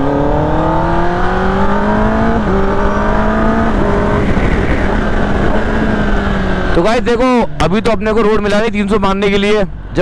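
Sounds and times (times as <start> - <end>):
wind rush: 0.0 - 6.7
motorcycle engine accelerating: 0.0 - 7.1.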